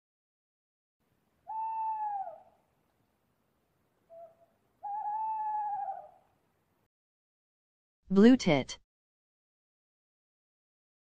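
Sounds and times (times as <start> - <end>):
owl hooting: 1.4 - 2.6, 4.1 - 6.3.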